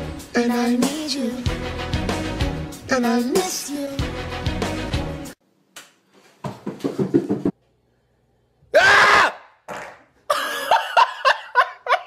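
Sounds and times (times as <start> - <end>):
person screaming: 8.7 - 9.6.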